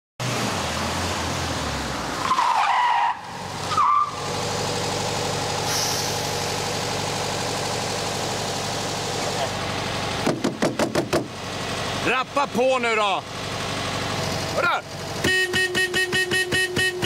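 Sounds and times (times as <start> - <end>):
tyres squealing under braking: 2.2 - 4.2
car engine running: 3.2 - 17.0.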